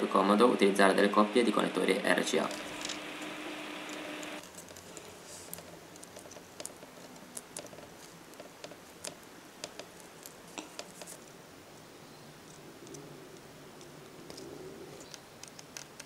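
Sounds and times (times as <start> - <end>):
steady hiss with low hum: 0.0 - 16.0.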